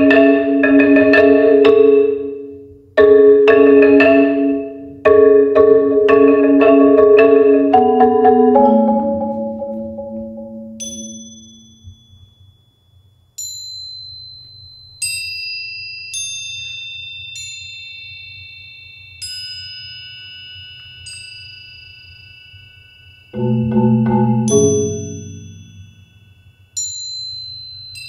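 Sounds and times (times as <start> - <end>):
marimba: 0.0 - 12.1, 23.3 - 26.3
bell-like metal percussion notes: 0.0 - 28.0.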